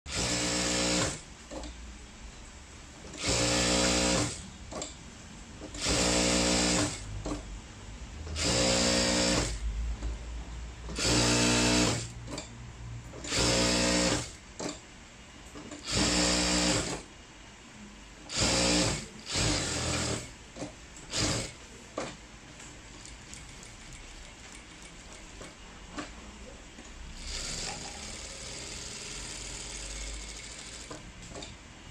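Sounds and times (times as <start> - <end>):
sewing machine stitching: 0.1 - 1.7, 3.0 - 5.0, 5.6 - 7.5, 8.3 - 9.7, 10.9 - 12.5, 13.1 - 14.8, 15.6 - 17.1, 18.3 - 22.2, 27.0 - 31.6.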